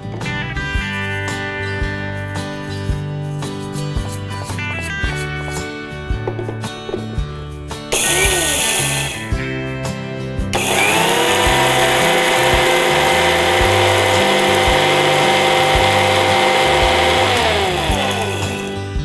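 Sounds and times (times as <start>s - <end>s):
mixer grinder motor whining: 7.9s - 9.3s, 10.6s - 19.0s.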